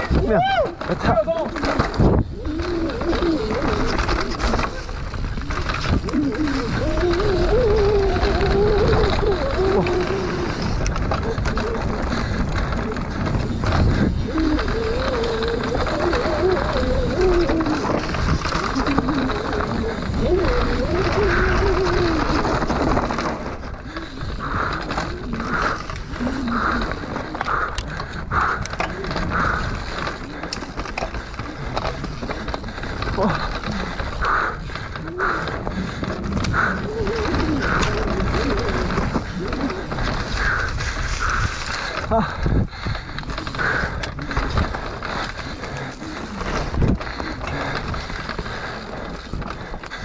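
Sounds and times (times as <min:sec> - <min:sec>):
bike frame and chain rattling: 0:00.0 - 0:50.0
bike tyres rolling over dirt: 0:00.0 - 0:50.0.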